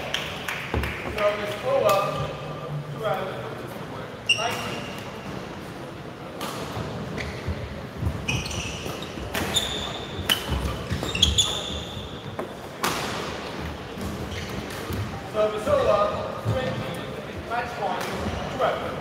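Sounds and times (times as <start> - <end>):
shoes squeaking on floor: 4.2 - 5.1, 7.1 - 12.5, 14.0 - 16.8.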